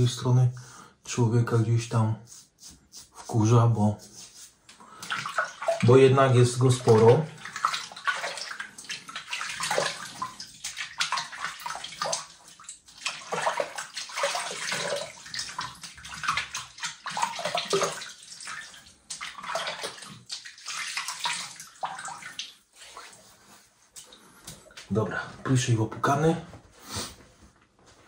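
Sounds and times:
water splashing at a sink: 0:04.9 - 0:23.2.

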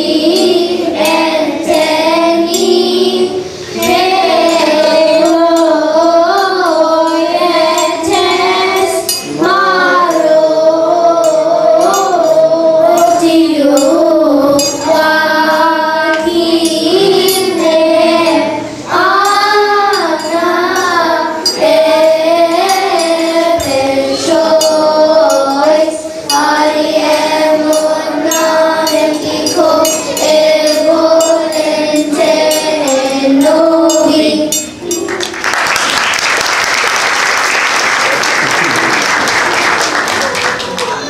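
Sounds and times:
children's choir singing hymn: 0:00.0 - 0:41.0
applause: 0:35.1 - 0:41.0.

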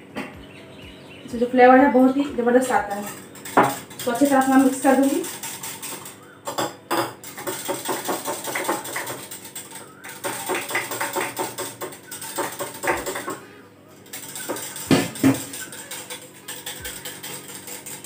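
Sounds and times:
spoon clinking against glass: 0:03.0 - 0:13.4, 0:14.1 - 0:18.0.

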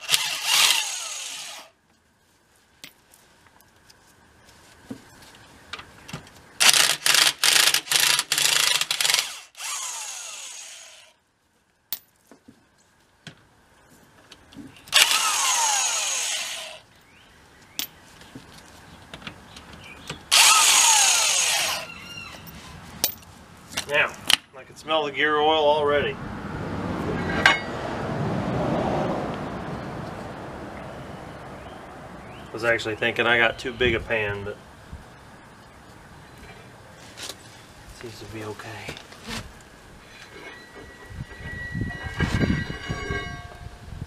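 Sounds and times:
impact wrench bursts: 0:00.0 - 0:01.7, 0:06.6 - 0:11.1, 0:14.9 - 0:16.8, 0:20.3 - 0:21.9.

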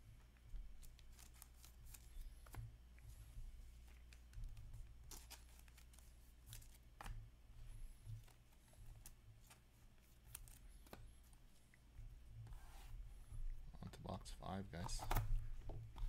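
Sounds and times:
low steady hum: 0:00.0 - 0:16.0
trading cards rustling: 0:00.6 - 0:02.6, 0:03.8 - 0:07.1, 0:14.5 - 0:16.0.

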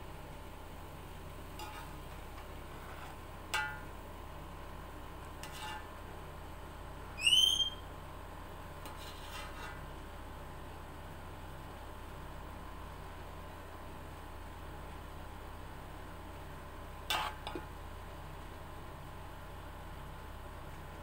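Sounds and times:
spoon scraping rice from pot: 0:01.6 - 0:03.2, 0:05.4 - 0:05.9, 0:08.8 - 0:09.9, 0:17.1 - 0:17.6
high rising whistle-like chirp: 0:07.2 - 0:07.8.

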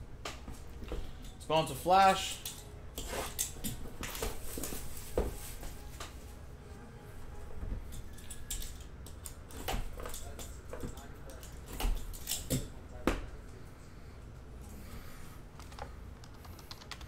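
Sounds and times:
cardboard and plastic wrapping rustling: 0:03.0 - 0:06.4.

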